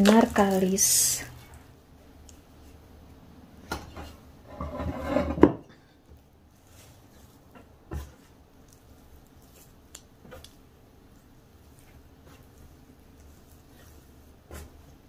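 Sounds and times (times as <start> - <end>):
ceramic bowl sliding on wood: 4.1 - 5.6
dough thumps and pats: 11.5 - 15.0.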